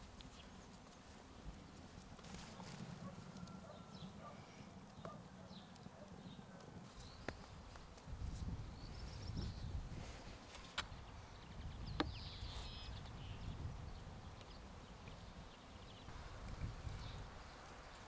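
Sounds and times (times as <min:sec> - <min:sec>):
faint bird chirps: 0:08.7 - 0:09.8, 0:10.6 - 0:18.0.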